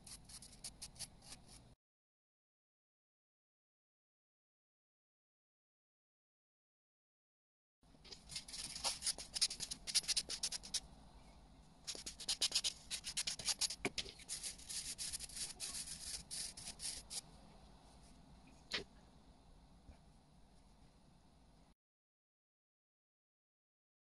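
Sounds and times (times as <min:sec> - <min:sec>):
nail buffer rubbing strokes: 0:00.0 - 0:01.6, 0:08.3 - 0:10.8, 0:11.9 - 0:17.2.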